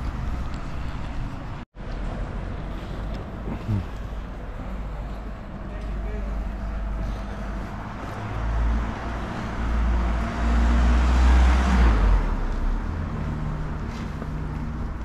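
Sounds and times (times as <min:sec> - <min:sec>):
car passing close by: 0:07.8 - 0:14.0.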